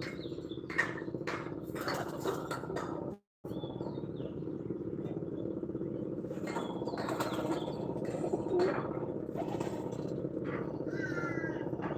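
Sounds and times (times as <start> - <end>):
pigeon wings flapping: 9.3 - 10.1.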